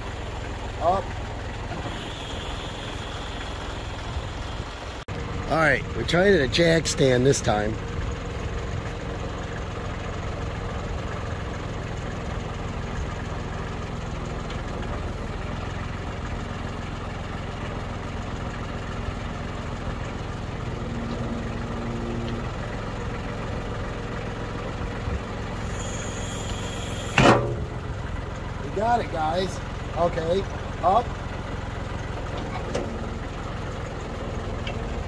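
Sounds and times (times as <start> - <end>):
tractor engine idling: 0.0 - 35.0.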